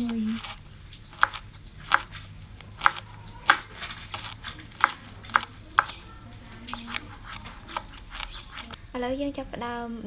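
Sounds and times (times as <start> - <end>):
knife slicing on wooden board: 0.0 - 6.0, 6.7 - 8.8.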